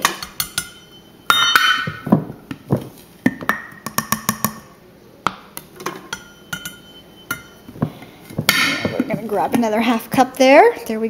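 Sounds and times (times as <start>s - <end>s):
measuring cup clinking against glass: 6.1s - 7.7s.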